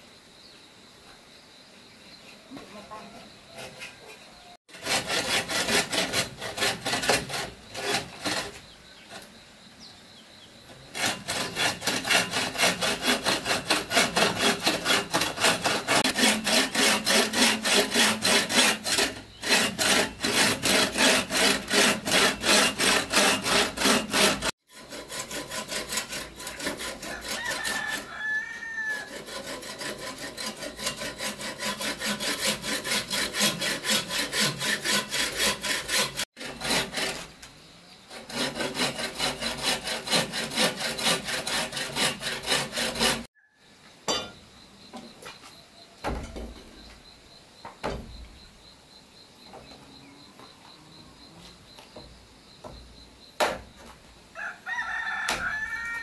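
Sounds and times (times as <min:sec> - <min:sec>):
hand saw cutting wood: 0:04.7 - 0:09.3, 0:10.7 - 0:37.5, 0:38.1 - 0:43.3
rooster crowing: 0:27.0 - 0:29.2, 0:54.3 - 0:56.0.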